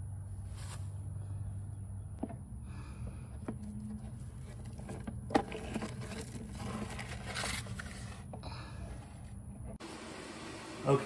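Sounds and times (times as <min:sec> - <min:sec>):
low steady hum: 0:00.0 - 0:11.0
brush scraping plastic: 0:03.9 - 0:08.3.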